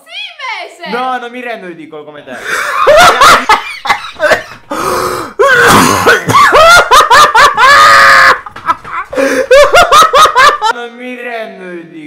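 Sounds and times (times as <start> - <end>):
person laughing hard: 2.5 - 4.5, 5.4 - 10.7
gasping breath: 4.7 - 6.2, 9.1 - 9.6.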